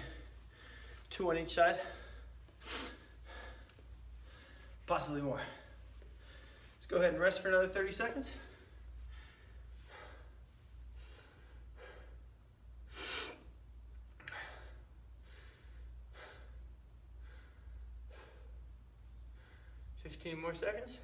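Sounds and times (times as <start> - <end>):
man breathing hard: 0.0 - 1.1, 1.8 - 6.8, 8.4 - 13.6, 14.2 - 20.0.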